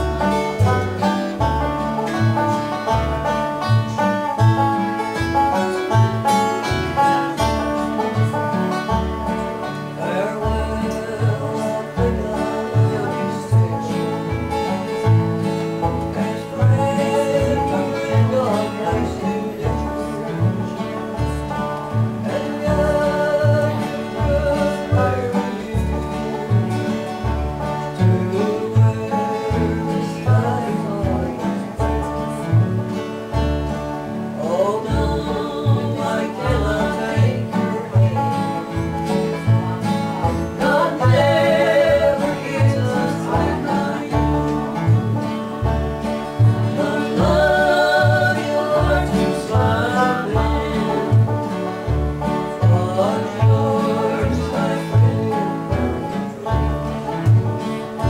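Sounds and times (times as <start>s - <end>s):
banjo: 0.0s - 58.0s
bluegrass music: 0.0s - 58.0s
upright bass plucking: 0.0s - 58.0s.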